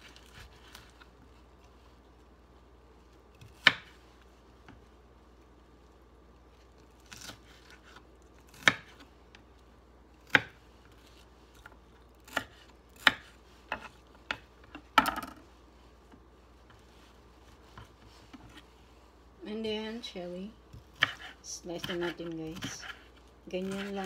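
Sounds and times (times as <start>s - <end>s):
knife chopping on wooden board: 12.2s - 14.4s, 20.8s - 24.0s.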